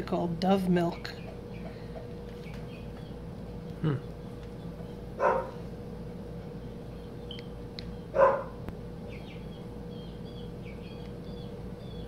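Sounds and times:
dog barking: 0:05.2 - 0:05.6, 0:08.2 - 0:08.6.

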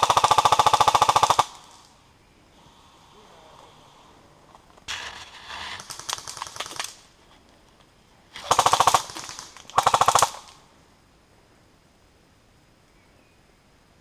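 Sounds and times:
airsoft guns firing full auto: 0:00.0 - 0:01.9, 0:05.7 - 0:07.0, 0:08.4 - 0:10.6.

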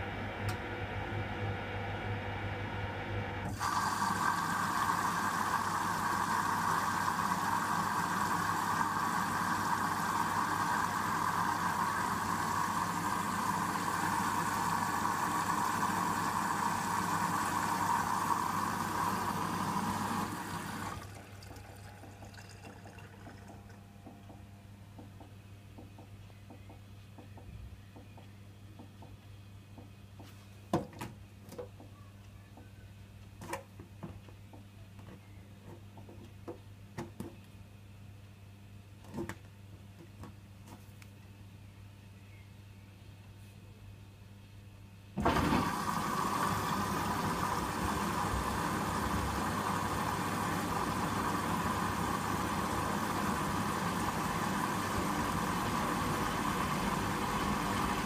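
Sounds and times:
washing machine motor hum: 0:00.0 - 0:29.1, 0:45.2 - 0:58.0.

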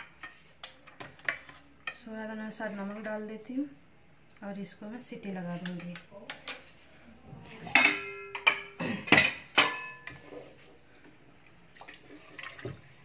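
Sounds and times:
steel kitchenware clinking: 0:07.7 - 0:10.4.

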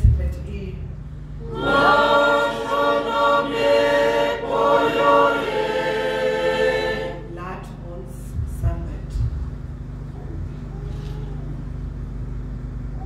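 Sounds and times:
group singing a hymn: 0:01.4 - 0:07.5.

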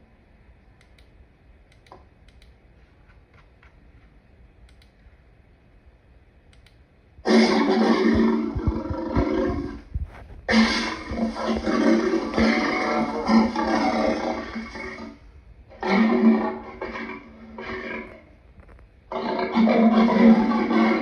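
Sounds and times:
faint clicks: 0:00.8 - 0:05.1, 0:06.5 - 0:06.8
lion roaring: 0:07.3 - 0:09.9, 0:10.5 - 0:18.3, 0:19.1 - 0:21.0.

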